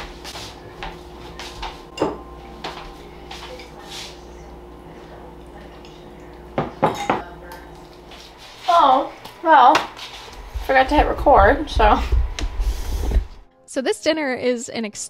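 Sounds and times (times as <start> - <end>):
faint steady hum: 0.0 - 12.5
utensils and dishes clinking: 1.8 - 4.2, 5.4 - 8.1.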